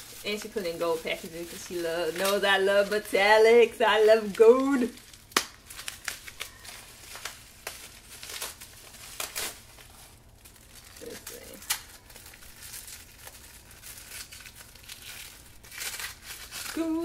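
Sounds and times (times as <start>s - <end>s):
wrapping paper crinkling: 0.0s - 17.0s
paper tearing: 10.8s - 17.0s.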